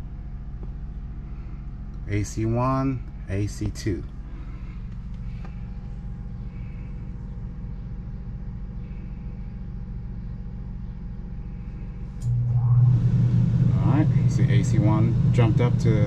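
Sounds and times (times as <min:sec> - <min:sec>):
low machine hum: 0:00.0 - 0:16.0
faint high tone: 0:12.3 - 0:14.4.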